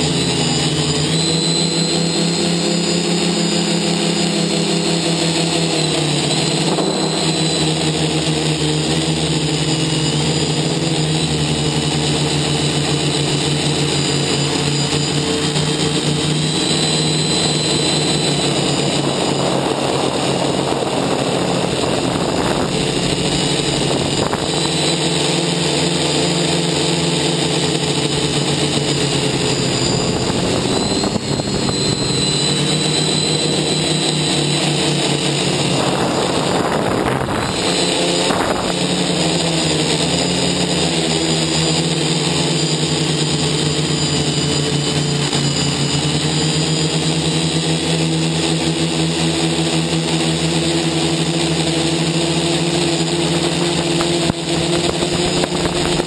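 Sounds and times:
drone propellers buzzing: 0.0s - 56.0s
rushing air noise: 15.7s - 39.2s.

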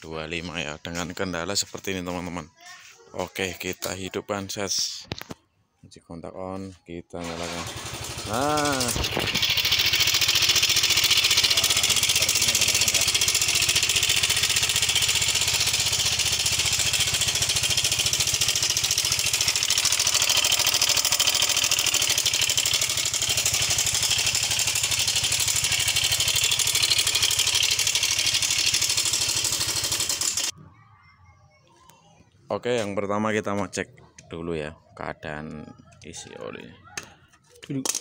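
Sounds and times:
scooter engine idling roughly: 7.2s - 30.5s.

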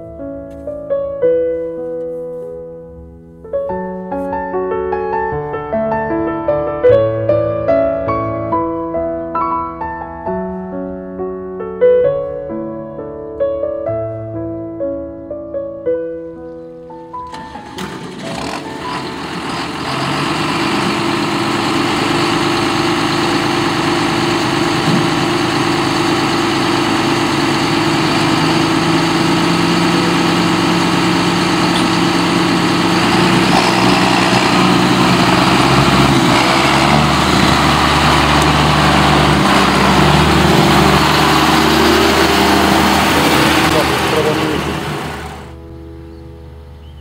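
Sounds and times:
tractor diesel engine running: 17.2s - 45.8s.

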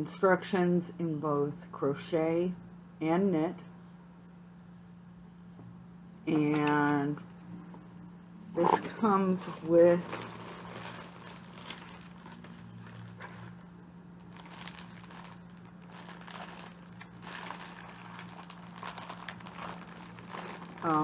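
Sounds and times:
faint low hum: 0.0s - 21.0s
plastic packaging crinkling: 6.3s - 7.0s, 8.6s - 13.6s, 14.2s - 21.0s.

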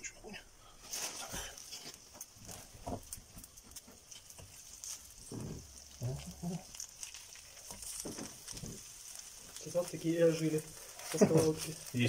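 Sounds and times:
oil sizzling in a frying pan: 0.6s - 12.0s
prawn shells clicking in pan: 2.1s - 12.0s.

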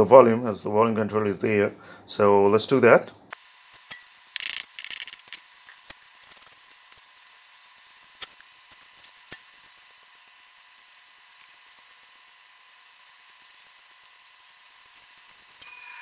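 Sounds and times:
faint steady tone: 15.6s - 16.0s.

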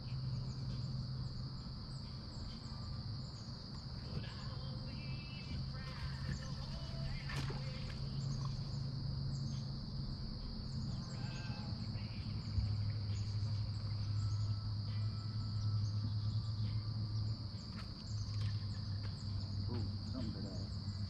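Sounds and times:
crickets chirping: 0.0s - 21.0s
low steady hum: 0.0s - 21.0s.

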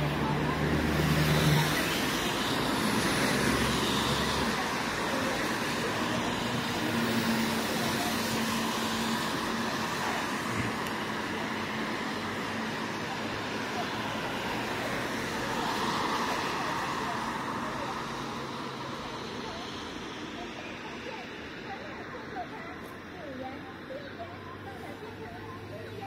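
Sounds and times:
vehicle engine hum: 0.0s - 26.0s.

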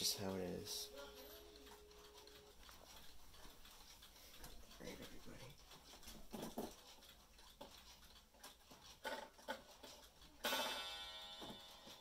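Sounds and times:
clock movement clicks: 0.0s - 12.0s
clock chime strike: 10.4s - 12.0s.

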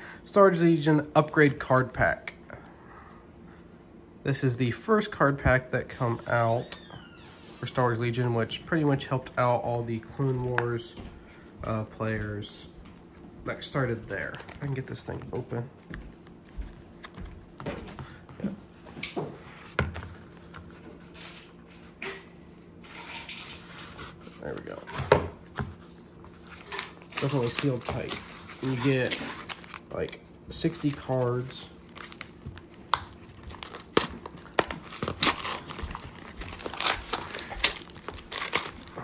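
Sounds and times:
cardboard pack being opened: 26.4s - 39.0s
packaging ripping: 26.4s - 39.0s.

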